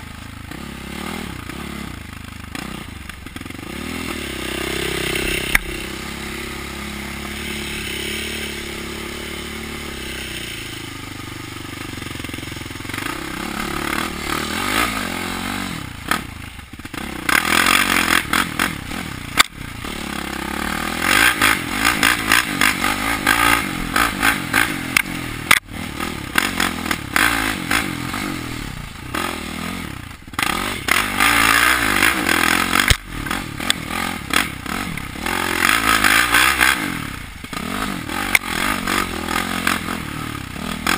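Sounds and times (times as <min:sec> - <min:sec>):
quad engine revving: 0:00.0 - 0:40.9.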